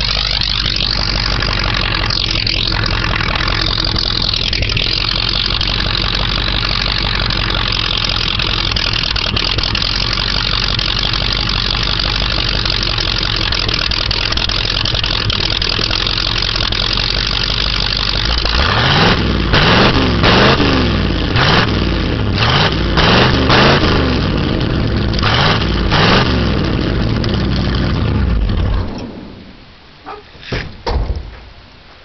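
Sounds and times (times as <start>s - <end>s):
truck engine revving: 0.0s - 29.9s
sharp knocks: 28.6s - 31.6s.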